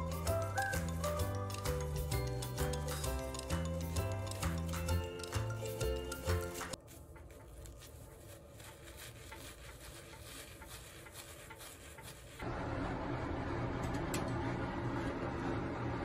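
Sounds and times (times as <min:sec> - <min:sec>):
background music: 0:00.0 - 0:06.8
towel rubbing a wet brush: 0:04.2 - 0:12.5.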